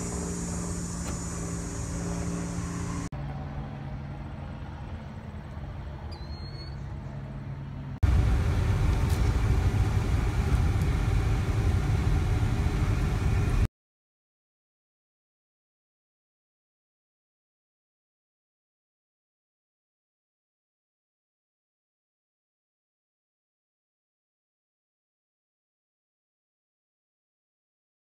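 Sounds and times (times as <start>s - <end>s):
road noise inside moving car: 0.0s - 3.1s, 3.8s - 13.7s
propeller aircraft engine drone: 0.0s - 13.7s.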